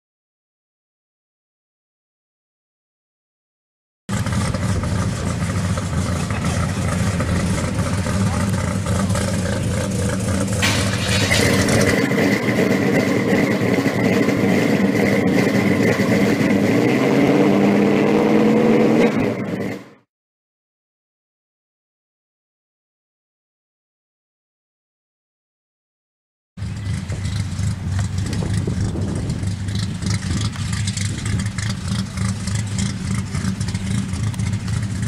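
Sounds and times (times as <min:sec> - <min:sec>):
car engine running: 0:04.1 - 0:20.0, 0:26.6 - 0:35.0.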